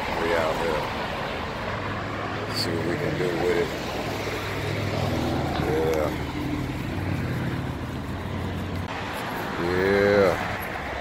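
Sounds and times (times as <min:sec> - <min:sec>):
vehicle engine idling: 0:02.5 - 0:10.8.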